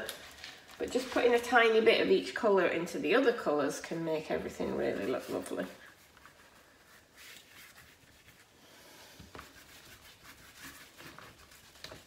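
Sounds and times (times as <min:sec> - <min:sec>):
paintbrush brushing on paper: 0:04.3 - 0:12.0.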